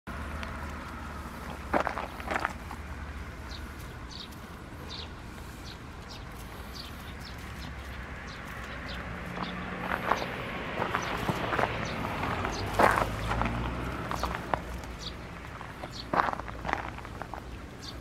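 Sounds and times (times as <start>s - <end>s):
steady low rumble: 0.1s - 18.0s
paws crunching on gravel: 0.3s - 18.0s
bird chirping: 3.3s - 16.4s, 17.4s - 18.0s.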